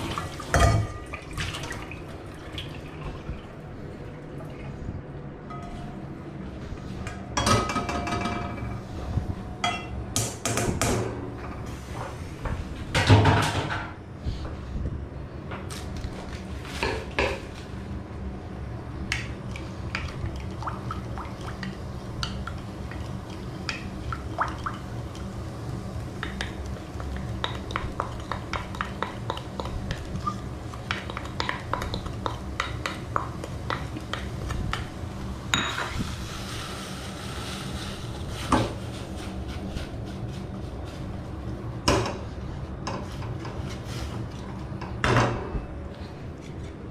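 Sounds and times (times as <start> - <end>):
steady low hum: 0.0 - 46.9
kitchenware clattering: 0.5 - 1.1, 7.4 - 8.8, 13.0 - 14.0, 35.5 - 36.0
wooden spoon scraping in a wok: 35.9 - 41.6, 43.0 - 44.6.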